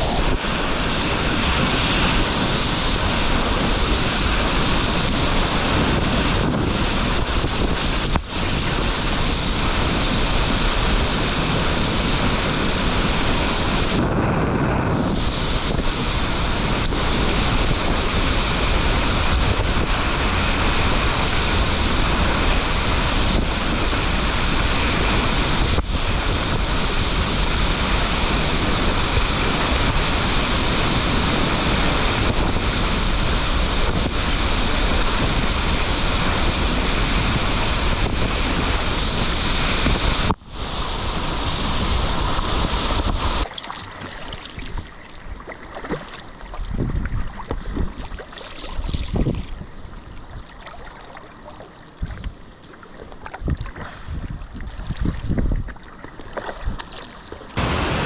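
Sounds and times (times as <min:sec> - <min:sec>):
whitewater rushing and splashing: 0:00.0 - 0:58.0.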